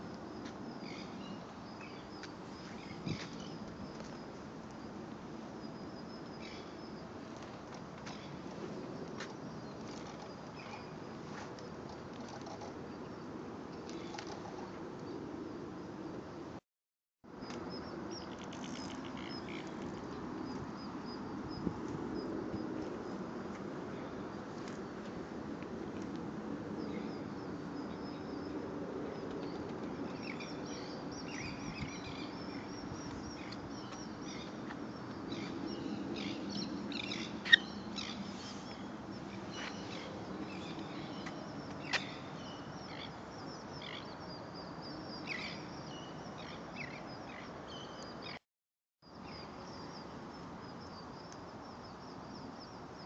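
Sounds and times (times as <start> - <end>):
small birds chirping: 30.2 - 44.3.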